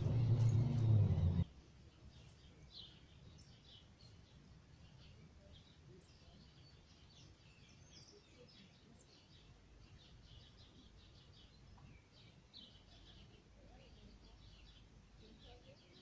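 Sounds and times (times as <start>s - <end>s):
low steady rumble: 0.0s - 1.5s
faint birdsong chirps: 0.0s - 16.0s.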